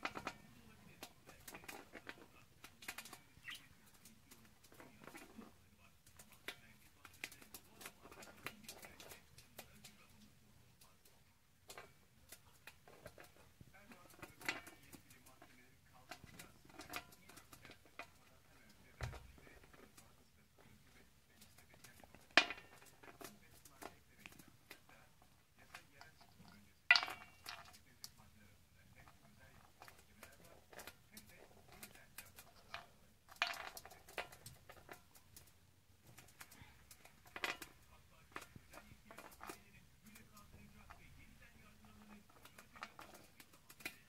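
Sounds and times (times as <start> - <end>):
beak and feet tapping metal tray: 0.0 - 44.0
beak and claws clicking on metal: 25.6 - 28.2.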